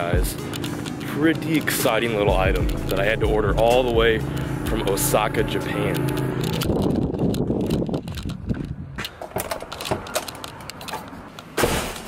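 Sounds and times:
camera handling rustling: 0:06.4 - 0:11.2.

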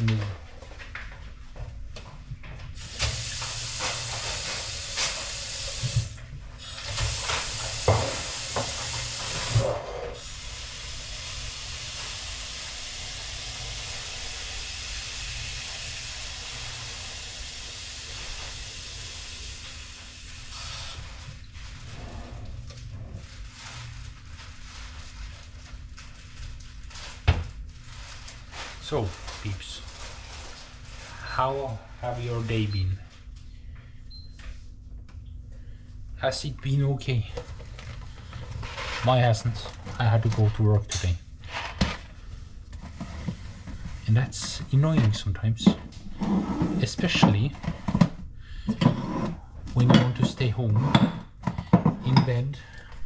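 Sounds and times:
kitchen tap running into sink: 0:02.8 - 0:19.9.

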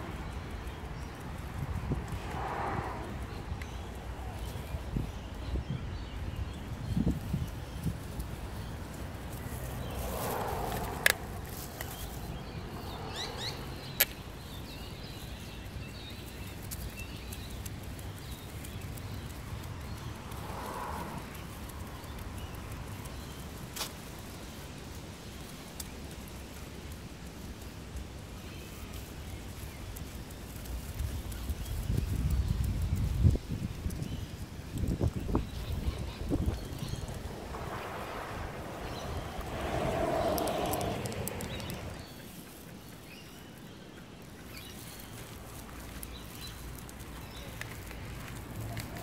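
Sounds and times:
steady low rumble: 0:34.7 - 0:42.2.

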